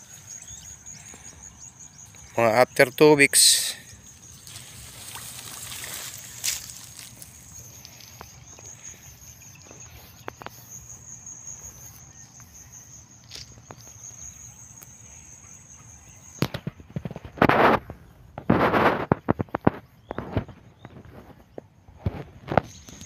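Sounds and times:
pulsing insect trill: 0.0s - 17.9s
leaves rustling against phone: 3.3s - 9.1s.

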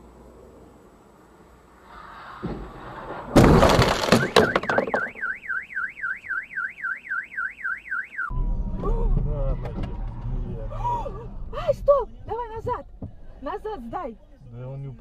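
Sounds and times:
cars colliding crunch: 2.2s - 5.4s
car alarm warbling: 4.0s - 8.4s.

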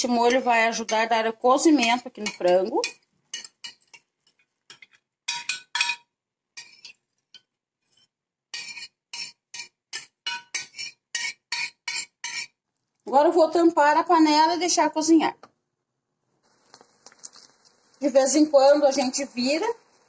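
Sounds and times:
spoon scraping a glass dish: 2.2s - 6.0s, 6.6s - 12.6s.

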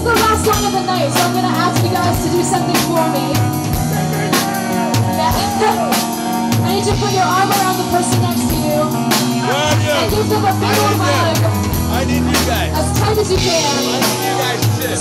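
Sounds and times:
woman singing: 0.0s - 3.5s, 5.1s - 11.6s, 12.7s - 14.3s
live rock band playing: 0.0s - 15.0s.

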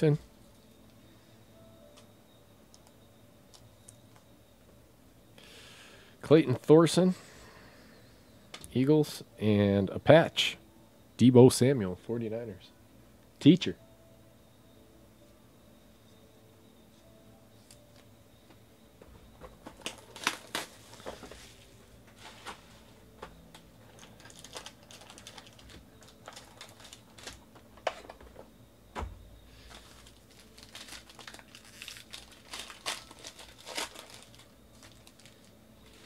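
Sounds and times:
foil pack crinkling and tearing: 19.8s - 21.6s, 23.9s - 27.4s, 29.7s - 36.0s
dull thump: 28.9s - 29.4s.

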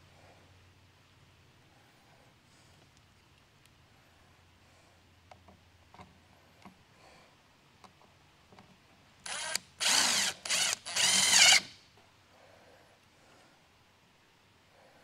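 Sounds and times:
cordless drill driving screws: 9.2s - 11.8s.

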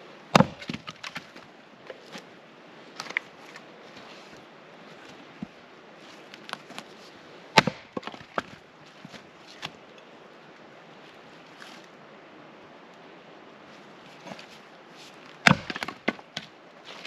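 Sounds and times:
axe chopping firewood: 0.3s - 1.4s, 7.6s - 9.7s, 15.4s - 16.6s
wood pieces knocking: 0.4s - 2.0s, 7.6s - 9.2s, 15.4s - 16.5s.

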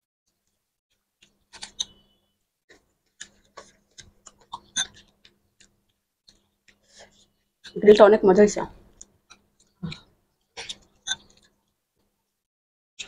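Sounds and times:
fingers mixing food on a plate: 2.7s - 8.1s, 8.8s - 11.8s.

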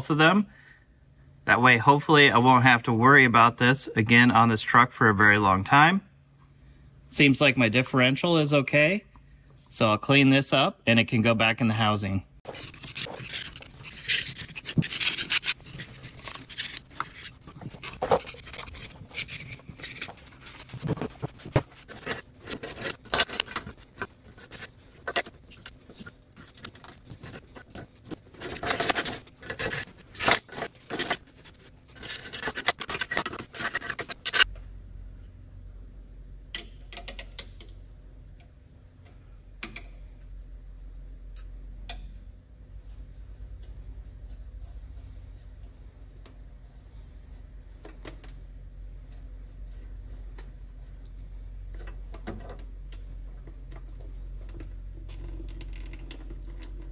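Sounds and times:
low steady hum: 0.0s - 56.9s
stiff brush scrubbing metal: 12.4s - 34.2s.

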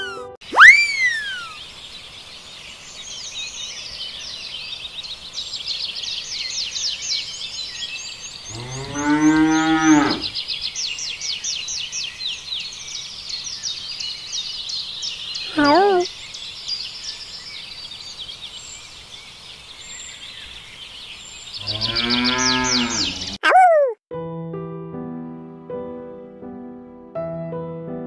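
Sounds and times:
high chirping: 0.0s - 1.6s, 15.4s - 16.1s
cow mooing: 8.5s - 10.3s, 21.7s - 23.4s.

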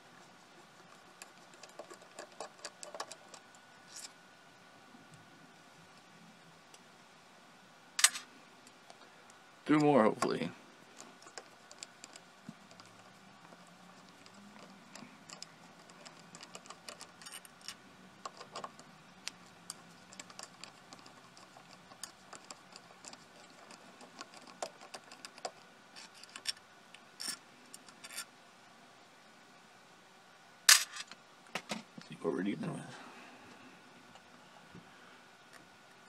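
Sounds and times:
faint steady hum: 0.0s - 36.0s.

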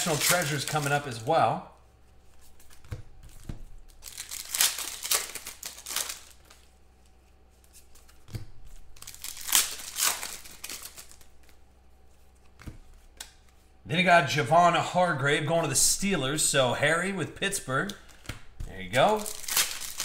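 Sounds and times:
plastic foil wrapper crinkling: 0.0s - 1.2s, 3.9s - 6.7s, 8.9s - 11.4s, 17.9s - 20.0s.

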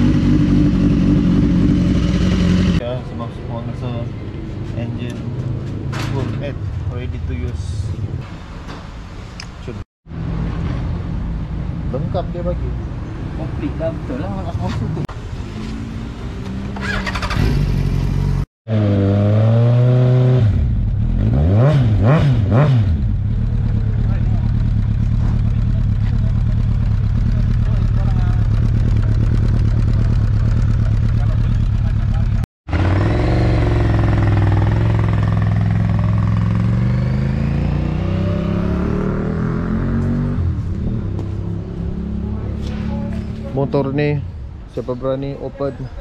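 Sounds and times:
motorcycle idling and revving: 0.0s - 8.0s, 10.2s - 44.5s
motorcycle engine running: 22.9s - 37.2s.

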